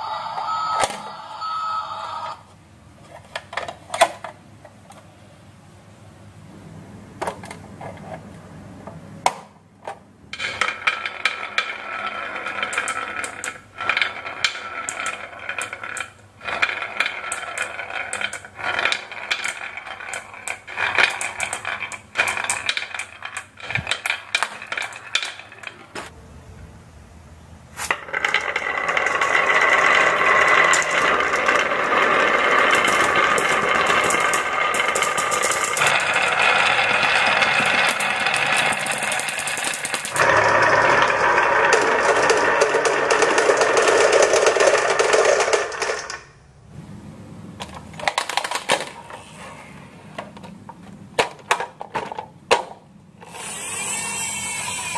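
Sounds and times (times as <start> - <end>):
marbles rattling down wooden track: 10.3 - 26.0, 27.9 - 46.3, 51.2 - 54.9.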